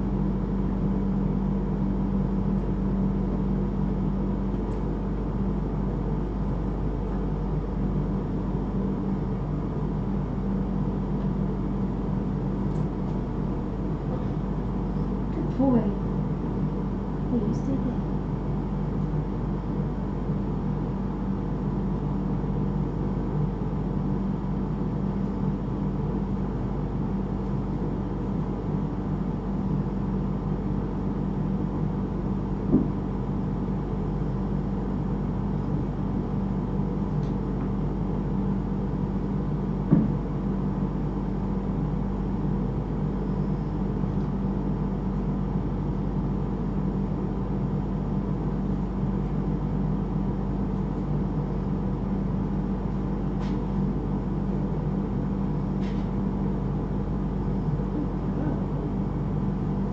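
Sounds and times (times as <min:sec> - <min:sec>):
low mechanical hum: 0:00.0 - 0:59.9
brief knocks: 0:39.9 - 0:40.2.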